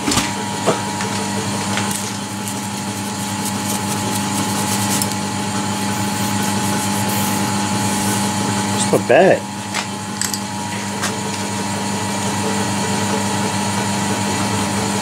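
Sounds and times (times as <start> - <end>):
electric motor humming: 1.0 - 8.9
brush sweeping metal chips: 2.0 - 8.4.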